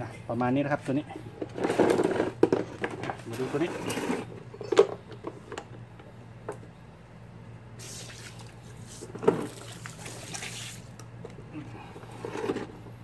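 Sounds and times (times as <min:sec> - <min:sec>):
short water hisses: 0:07.8 - 0:10.9.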